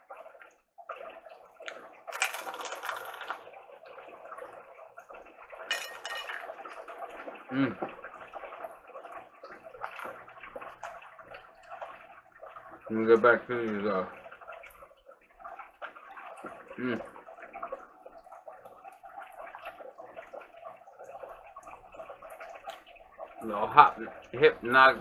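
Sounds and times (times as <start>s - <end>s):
crunchy chewing: 1.7s - 3.4s.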